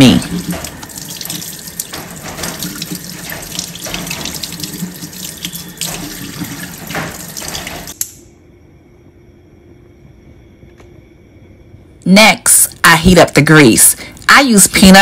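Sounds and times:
faucet water splashing into sink: 0.0s - 8.0s.

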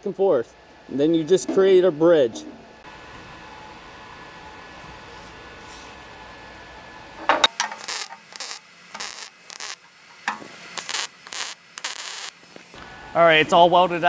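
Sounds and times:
low welder hiss: 2.9s - 14.0s
welder arc crackling: 7.6s - 12.7s.

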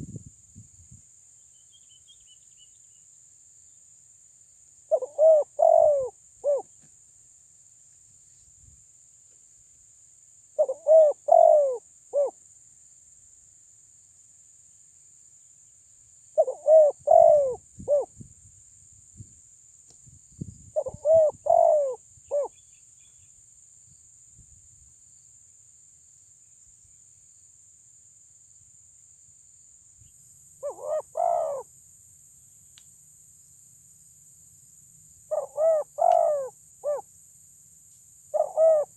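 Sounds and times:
dove cooing: 4.9s - 6.7s, 10.6s - 12.4s, 16.4s - 18.1s, 20.8s - 22.6s, 30.6s - 31.7s, 35.3s - 37.0s, 38.3s - 38.9s.

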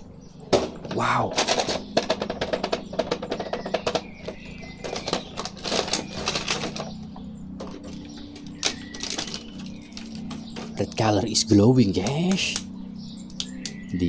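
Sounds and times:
plastic packaging crackling: 2.7s - 10.8s.

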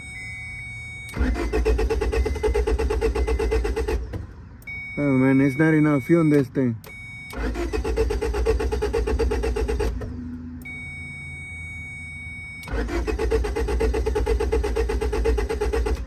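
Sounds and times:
starter cranking engine: 1.1s - 4.1s, 7.3s - 10.0s, 12.6s - 16.0s.

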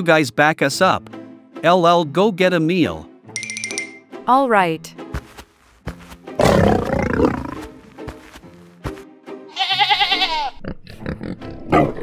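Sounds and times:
background music: 0.0s - 12.0s
lion roar: 6.4s - 7.7s.

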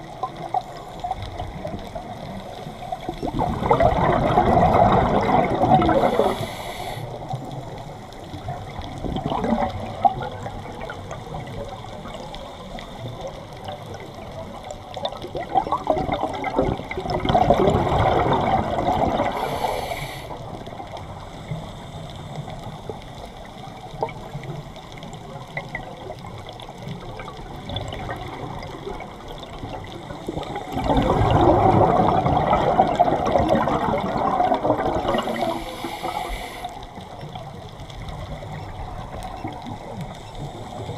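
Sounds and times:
bubbling exhaled air underwater: 0.0s - 40.9s
regulator inhalation hiss: 6.0s - 7.3s, 19.3s - 20.5s, 35.2s - 36.8s.

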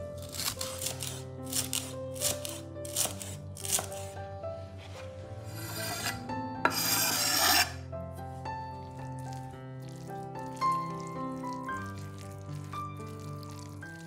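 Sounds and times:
soft background music: 0.0s - 14.0s
rasping scrapes: 4.9s - 7.8s.

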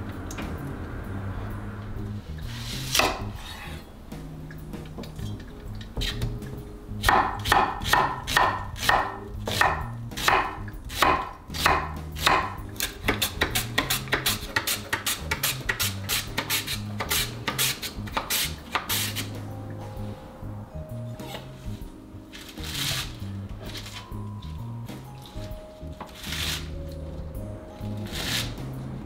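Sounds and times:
knife slicing onion on board: 7.0s - 19.4s.

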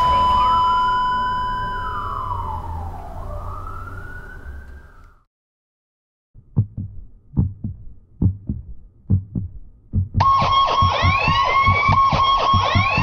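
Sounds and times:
heartbeat thumps: 6.4s - 13.0s
high electronic tone: 10.2s - 13.0s.

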